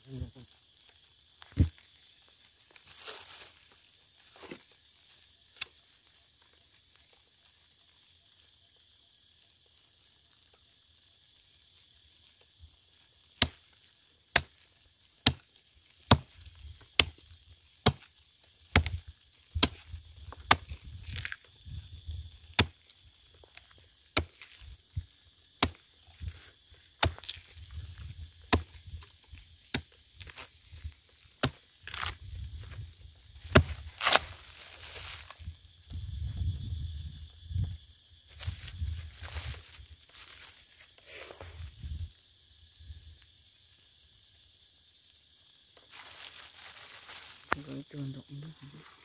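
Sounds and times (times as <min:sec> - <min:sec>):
wood splintering and crackling: 0:00.5 - 0:36.0, 0:38.3 - 0:41.5, 0:45.8 - 0:48.0
hatchet chopping wood: 0:13.4 - 0:13.6, 0:14.3 - 0:14.6, 0:15.2 - 0:15.4, 0:16.0 - 0:17.2, 0:17.8 - 0:18.1, 0:18.7 - 0:19.0, 0:19.6 - 0:19.8, 0:20.4 - 0:21.4, 0:22.6 - 0:22.8, 0:24.2 - 0:24.6, 0:25.6 - 0:25.8, 0:27.0 - 0:27.5, 0:28.4 - 0:28.8, 0:29.7 - 0:30.3, 0:31.4 - 0:32.1, 0:33.4 - 0:34.2.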